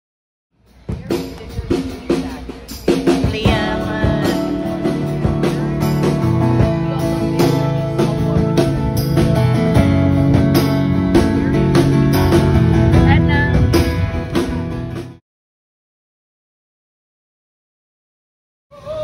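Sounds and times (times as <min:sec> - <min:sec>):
drum kit steady beat: 0:00.6 - 0:15.2
strummed acoustic guitar: 0:03.1 - 0:15.2.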